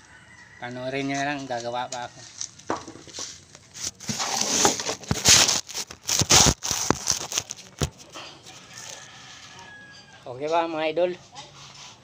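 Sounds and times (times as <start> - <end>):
sharp knocks and bumps: 2.6 - 3.3
fingers rubbing on microphone: 3.0 - 9.5.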